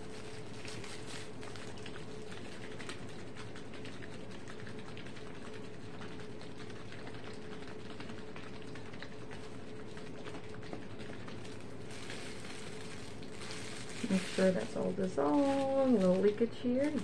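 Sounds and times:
steady hum: 0.0s - 17.0s.

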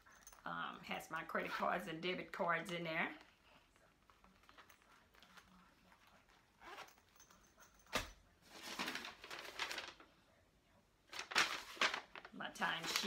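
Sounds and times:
pouch zipper: 6.5s - 7.2s
paper rustling: 7.9s - 10.1s, 11.1s - 13.0s.

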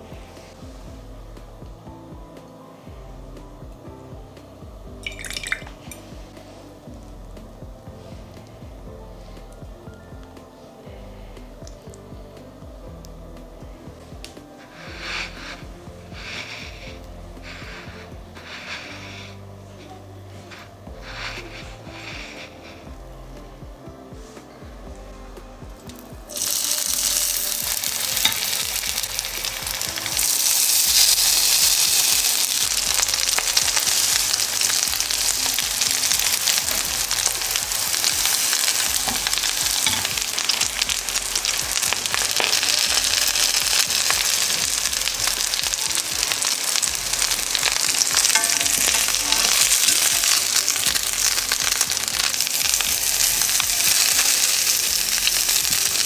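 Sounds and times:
food sizzling in a pan: 5.0s - 6.6s, 14.6s - 19.5s, 20.3s - 22.9s, 25.9s - 56.0s.

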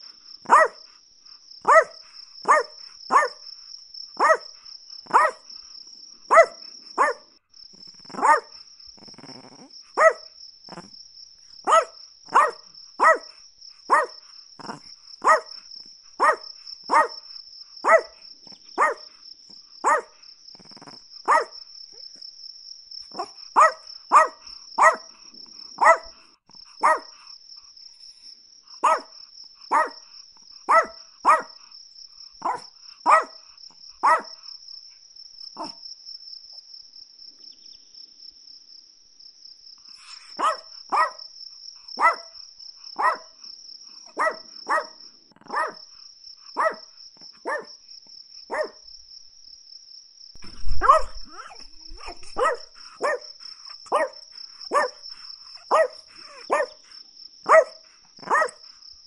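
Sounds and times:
high insect trill: 0.0s - 59.0s
small dog barking: 0.4s - 1.0s, 1.6s - 3.4s, 4.2s - 5.5s, 6.3s - 7.4s, 8.0s - 10.9s, 11.6s - 15.6s, 16.2s - 19.2s, 19.8s - 22.1s, 23.1s - 27.2s, 28.8s - 30.1s, 30.7s - 31.7s, 32.4s - 34.4s, 35.6s - 35.8s, 40.0s - 41.3s, 42.0s - 42.4s, 43.0s - 43.4s, 44.0s - 46.0s, 46.6s - 47.8s, 48.5s - 48.8s, 50.4s - 58.7s.

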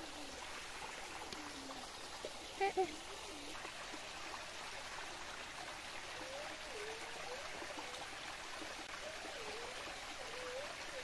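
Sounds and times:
water rushing and trickling: 0.0s - 11.0s.

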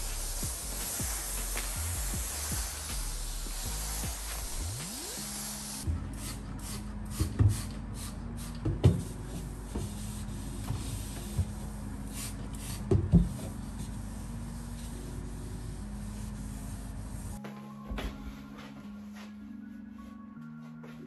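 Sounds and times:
steam mop hissing: 0.0s - 8.1s.

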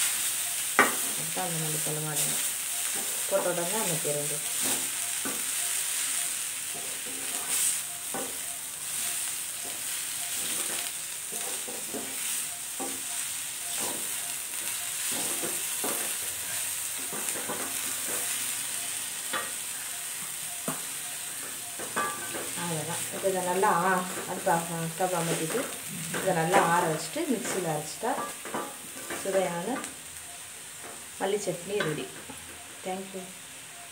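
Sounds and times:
leaves sizzling in hot oil: 0.0s - 33.9s
spatula scraping a pan: 6.7s - 8.3s, 8.9s - 13.0s.

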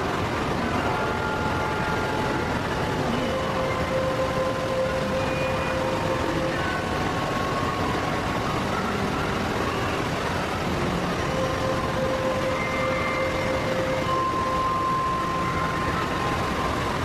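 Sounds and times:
faint held tones: 0.0s - 17.0s
indoor waterfall rushing: 0.0s - 17.0s.

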